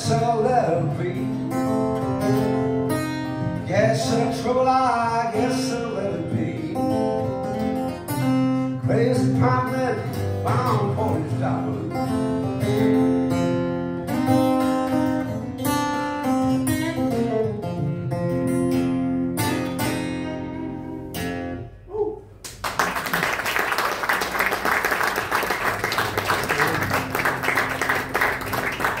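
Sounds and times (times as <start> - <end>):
acoustic guitar fingerpicking: 0.0 - 22.3
audience applauding: 22.4 - 29.0.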